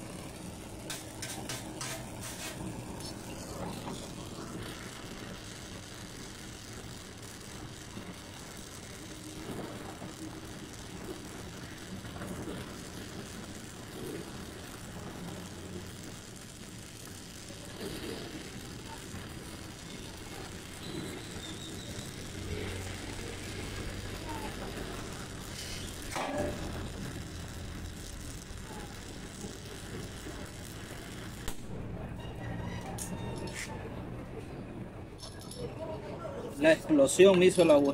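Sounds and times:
welding torch flame hissing: 0.0 - 37.9.

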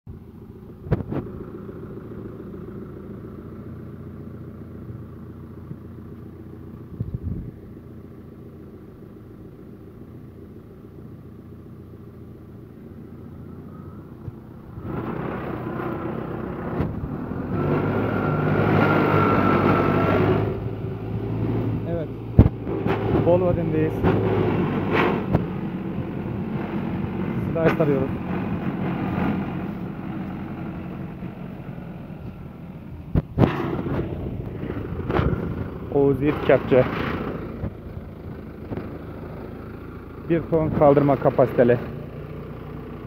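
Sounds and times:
tractor engine running: 0.1 - 43.0
hydraulics lifting: 13.0 - 42.0.

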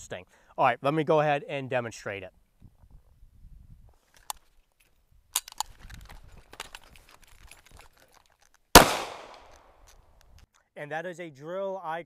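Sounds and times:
pistol shot with echo: 8.8 - 9.5
rifle dry-fire click: 8.8 - 10.5.

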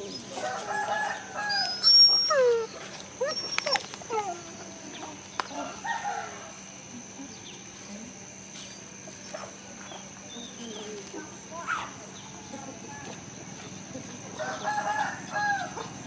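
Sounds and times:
dog whining: 1.4 - 4.7
chickens clucking: 9.1 - 16.0.

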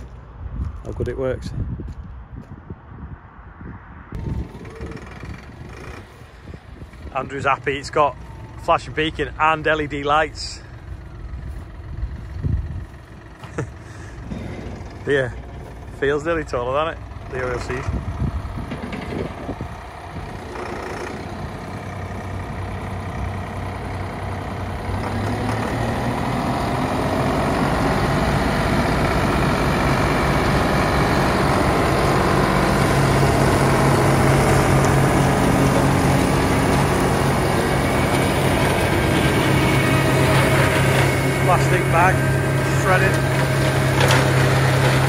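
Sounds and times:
tractor diesel engine running: 4.1 - 45.0
flail mower spinning: 4.2 - 11.7, 18.8 - 23.8, 27.1 - 45.0.

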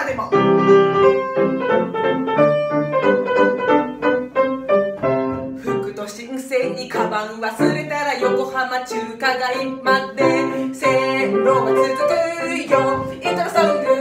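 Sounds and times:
grand piano playing lively tune: 0.0 - 14.0
woman singing: 5.6 - 14.0.

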